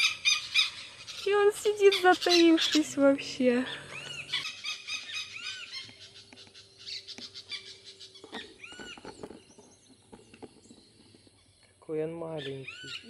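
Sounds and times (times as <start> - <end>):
lapwings alarm calls: 0.0 - 9.5, 12.3 - 13.0.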